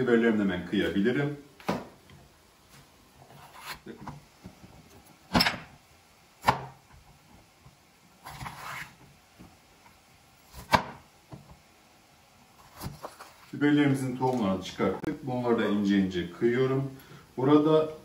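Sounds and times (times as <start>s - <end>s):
rustling scrape: 2.7s - 3.9s, 8.2s - 9.0s, 12.6s - 13.6s.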